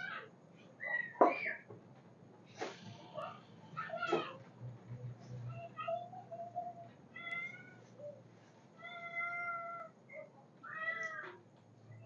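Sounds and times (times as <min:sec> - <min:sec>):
cat meowing: 0:07.2 - 0:07.8, 0:08.8 - 0:10.0, 0:10.6 - 0:11.4.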